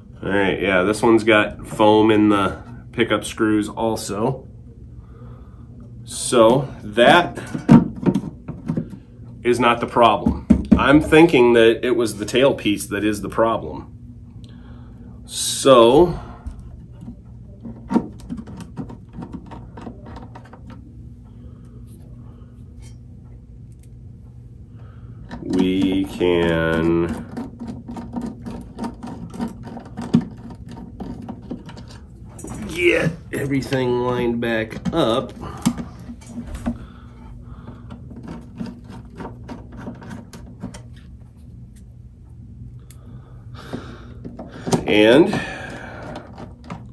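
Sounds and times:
steady low hum: 0:00.0 - 0:46.9
screwdriver clicking and scraping: 0:25.3 - 0:32.6, 0:37.9 - 0:41.1.

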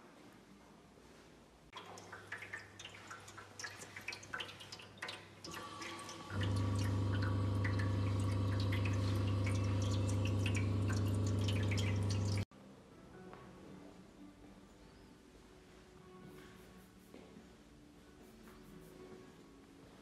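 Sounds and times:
faucet water splashing into basin: 0:01.8 - 0:12.5
loud steady low hum: 0:06.3 - 0:12.4.

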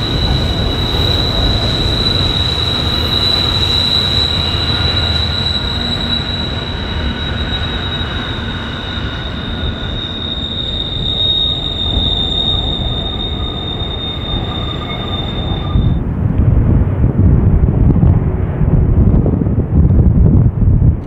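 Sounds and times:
train wheels squealing on rail: 0:00.0 - 0:16.0
rumble of passing train cars: 0:00.0 - 0:21.0.

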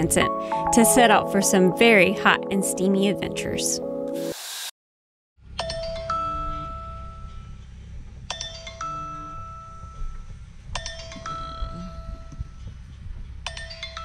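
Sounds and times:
two-note phone alarm chime: 0:00.0 - 0:03.2.

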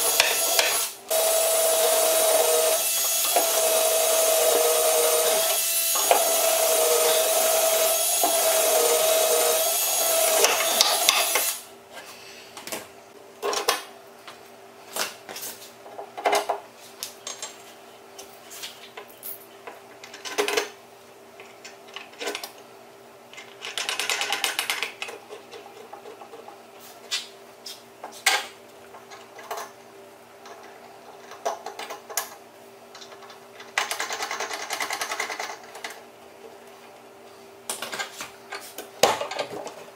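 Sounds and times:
power tool whining: 0:00.0 - 0:11.6
power tool buzzing bursts: 0:00.0 - 0:11.7.

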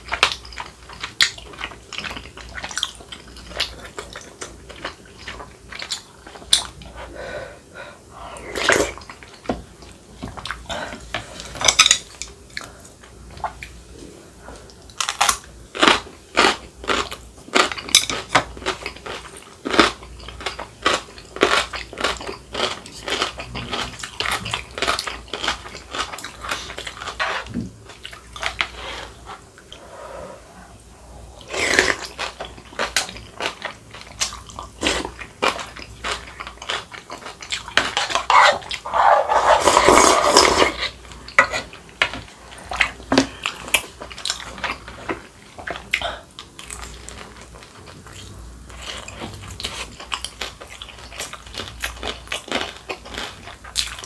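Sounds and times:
chewing and crunching food: 0:00.0 - 0:07.0, 0:08.4 - 0:13.8, 0:14.6 - 0:29.8, 0:31.3 - 0:54.0.

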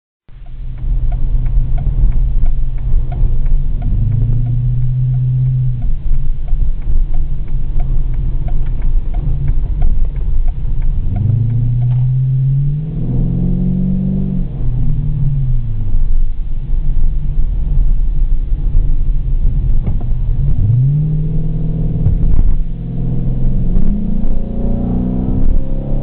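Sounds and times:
light regular ticking: 0:00.3 - 0:12.8
car engine rumbling: 0:00.3 - 0:26.0.

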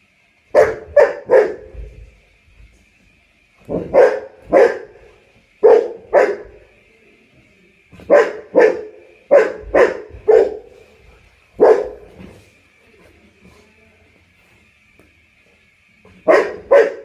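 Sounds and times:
large dog barking: 0:00.6 - 0:01.8, 0:03.7 - 0:05.0, 0:05.6 - 0:06.6, 0:08.0 - 0:10.8, 0:11.6 - 0:12.2, 0:16.2 - 0:17.0.

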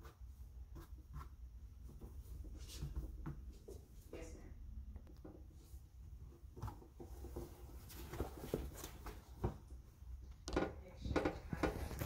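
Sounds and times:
handling rustles and knocks: 0:05.2 - 0:09.8.

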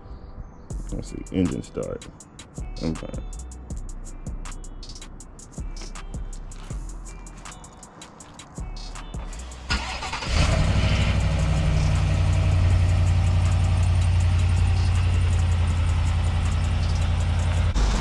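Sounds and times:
truck engine idling: 0:09.3 - 0:18.0
engine cranking: 0:09.6 - 0:18.0.

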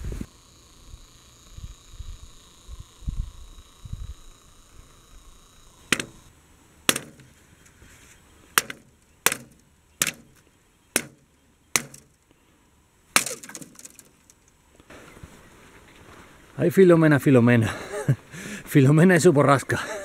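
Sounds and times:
thin ice cracking: 0:13.2 - 0:14.4.

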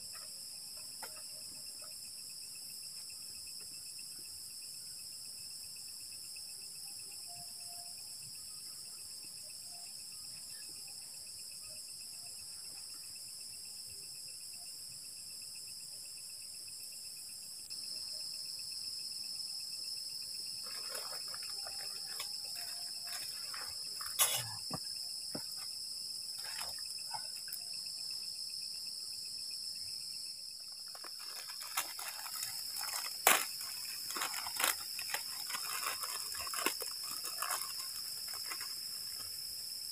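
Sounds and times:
crickets trilling: 0:00.0 - 0:39.9
crackles and clicks: 0:30.8 - 0:39.3.

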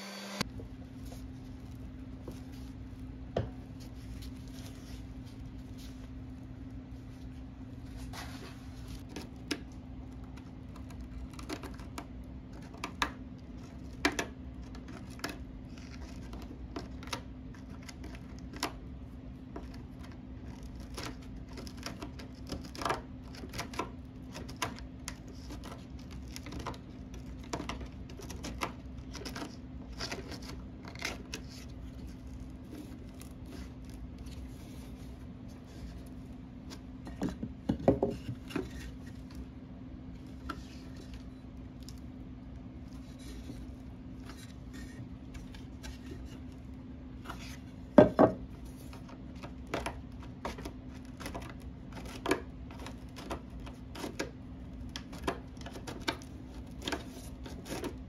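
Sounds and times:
steady low hum: 0:00.2 - 0:58.0
board knocking against edge: 0:48.0 - 0:48.4.

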